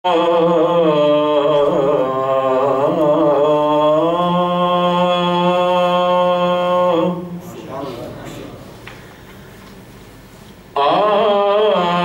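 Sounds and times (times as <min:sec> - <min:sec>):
man singing melismatically: 0:00.0 - 0:07.6, 0:10.7 - 0:12.0.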